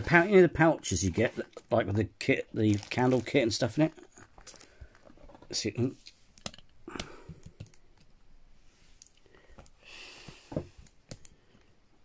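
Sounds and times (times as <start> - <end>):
folder rustle: 2.5 - 6.6.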